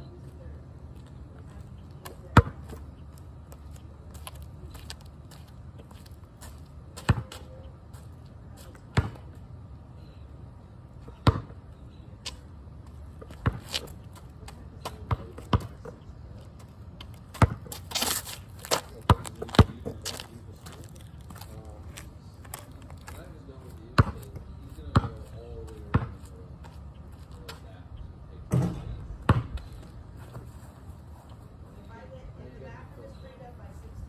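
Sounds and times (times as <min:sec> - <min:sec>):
basketball bouncing on pavement: 0:02.0 - 0:08.0, 0:08.6 - 0:09.4, 0:11.0 - 0:11.6, 0:12.2 - 0:16.0, 0:16.6 - 0:21.6, 0:22.4 - 0:27.6, 0:28.5 - 0:30.4
scuffing noise: 0:17.7 - 0:23.3.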